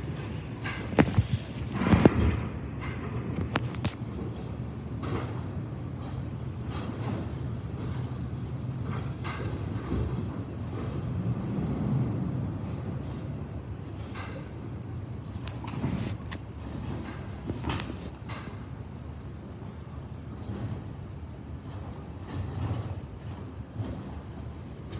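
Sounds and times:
truck clunks: 0.6 - 8.1, 15.2 - 18.7.

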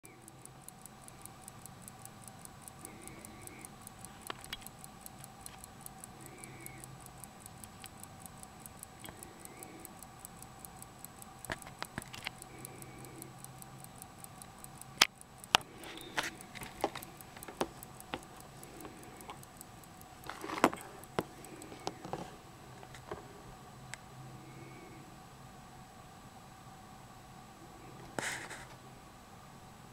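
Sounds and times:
watch movement ticking rapidly: 0.0 - 22.4
irregular clicks and knocks: 0.0 - 23.3.

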